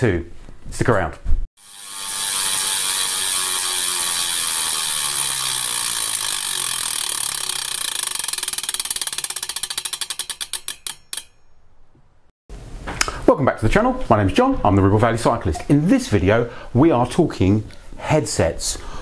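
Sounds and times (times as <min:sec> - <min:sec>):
bicycle freewheel ticking: 0:01.6 - 0:11.4.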